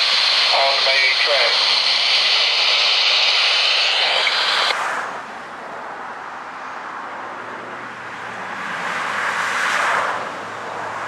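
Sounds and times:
diesel train engine hum: 0:00.0 - 0:04.8
road traffic passing: 0:00.0 - 0:11.0.

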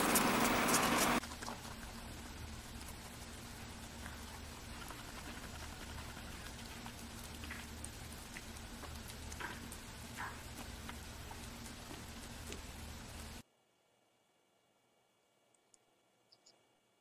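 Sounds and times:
rabbit chewing: 0:00.0 - 0:13.4
low hum: 0:00.0 - 0:17.0.

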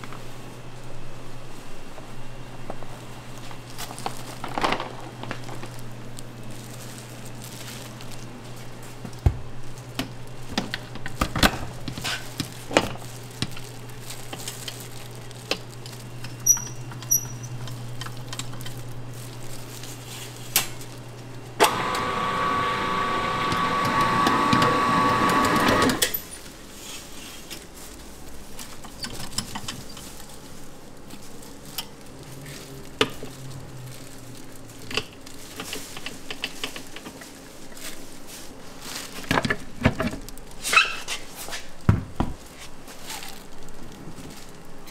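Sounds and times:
hand working dough in steel bowl: 0:00.0 - 0:44.9
stand mixer whirring: 0:21.7 - 0:26.0.

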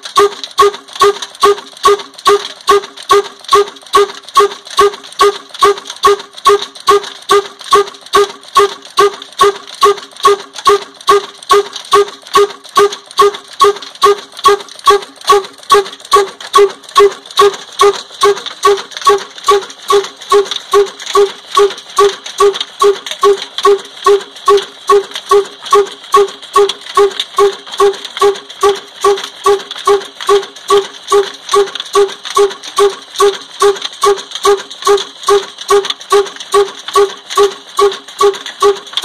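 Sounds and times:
single-cylinder engine running: 0:12.3 - 0:39.0.

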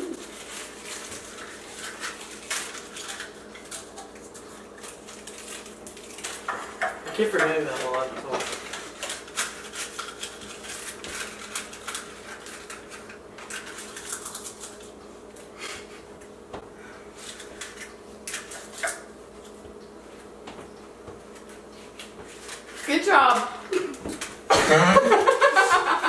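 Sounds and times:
paper and cardboard rustling: 0:00.0 - 0:14.8.

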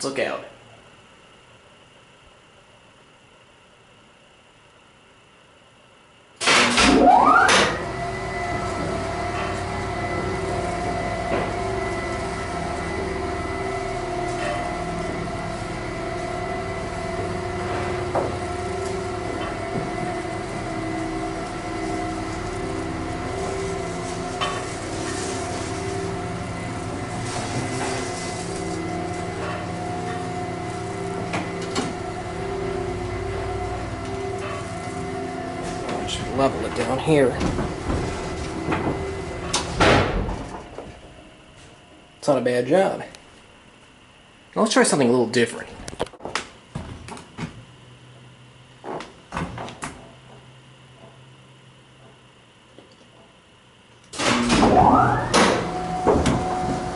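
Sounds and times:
elevator motor hum and whine: 0:00.0 - 0:56.9
elevator machine clunk: 0:06.4 - 0:41.3, 0:54.2 - 0:56.9.

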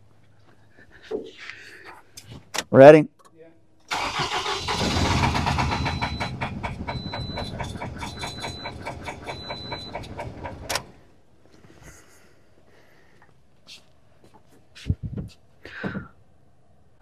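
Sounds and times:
misfiring car engine running: 0:03.9 - 0:10.9.

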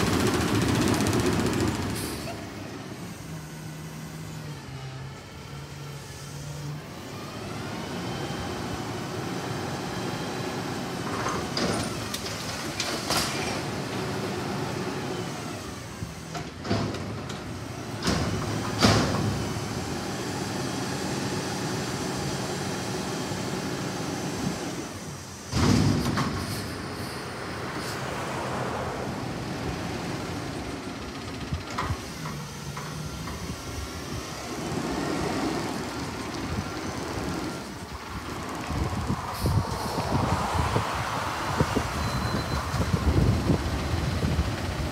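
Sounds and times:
metal bangs of dumpster: 0:25.5 - 0:26.7.

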